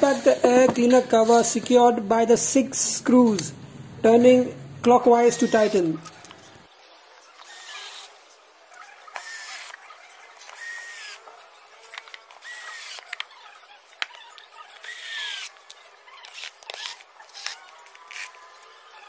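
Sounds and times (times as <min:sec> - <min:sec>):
cordless screwdriver whirring: 0:05.3 - 0:06.4, 0:07.4 - 0:08.2, 0:09.1 - 0:09.8, 0:10.4 - 0:11.2, 0:11.9 - 0:13.4, 0:14.8 - 0:18.7.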